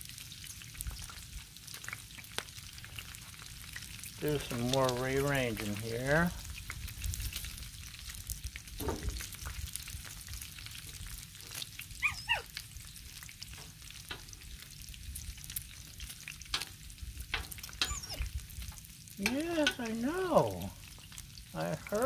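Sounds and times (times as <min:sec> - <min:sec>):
bacon sizzling and popping: 0:00.0 - 0:22.0
dog whining: 0:12.0 - 0:12.6, 0:17.6 - 0:18.4.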